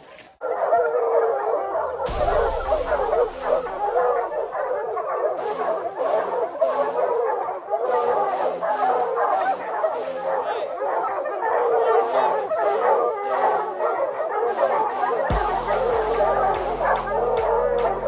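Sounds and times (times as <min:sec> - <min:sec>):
dogs baying and barking: 0:00.2 - 0:18.0
sharp dog barks: 0:00.4 - 0:18.0.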